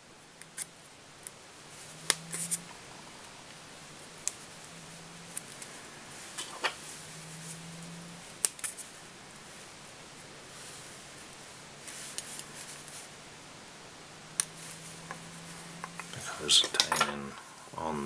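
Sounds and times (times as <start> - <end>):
faint low hum: 0.0 - 18.0
tinsel clicking and snipping: 1.8 - 2.7, 6.3 - 9.4.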